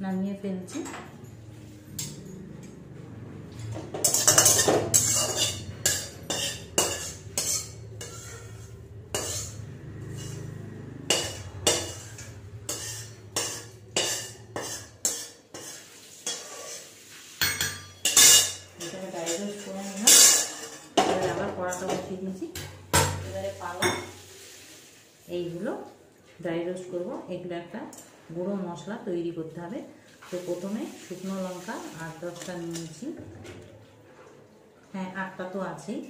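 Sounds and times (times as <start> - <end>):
metal spatula scraping steel pot: 3.9 - 22.0.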